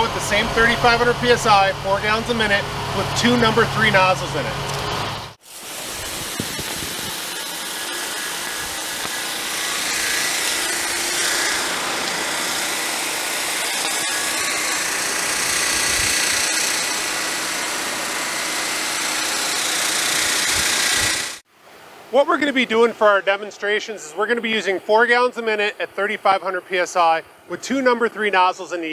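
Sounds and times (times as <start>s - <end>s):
high-pressure water jets spraying board: 5.4s - 21.4s.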